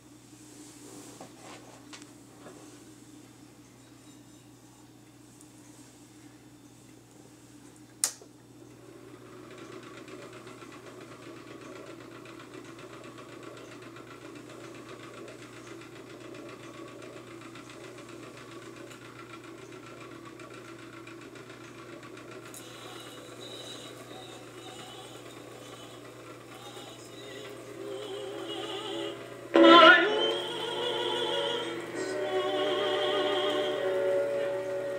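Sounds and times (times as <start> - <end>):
faint music: 22.4 - 34.9
amplifier hum: 22.6 - 34.9.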